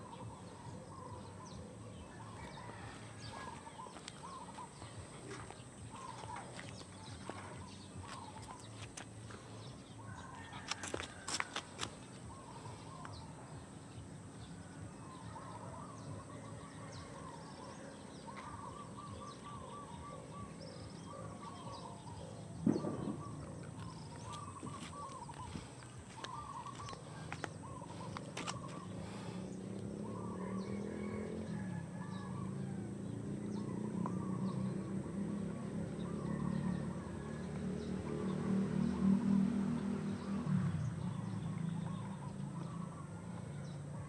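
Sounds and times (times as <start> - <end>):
bird warbling calls: 0.0 - 8.8, 15.2 - 30.7
loud thump: 22.6 - 23.3.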